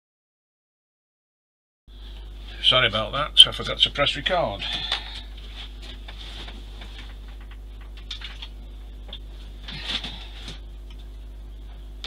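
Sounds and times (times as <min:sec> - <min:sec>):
steady low hum: 0:01.9 - 0:12.0
taps and rustles of handling: 0:04.7 - 0:11.1.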